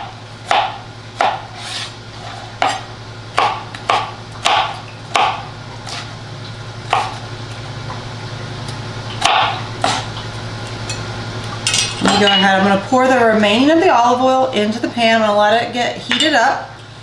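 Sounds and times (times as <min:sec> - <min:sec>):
knife slicing pepper on board: 0:00.5 - 0:06.1, 0:09.2 - 0:10.1.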